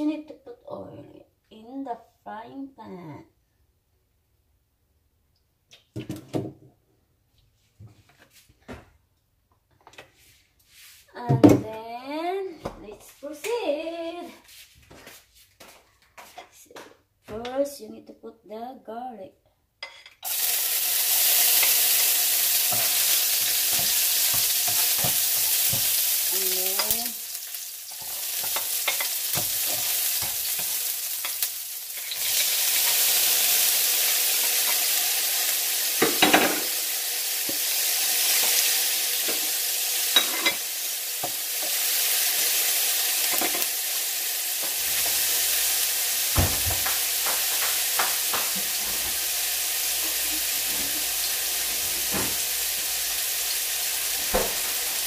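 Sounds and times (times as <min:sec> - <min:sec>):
utensil stirring in a pan: 0:20.2 - 0:36.4
vegetables sizzling in hot oil: 0:20.2 - 0:55.0.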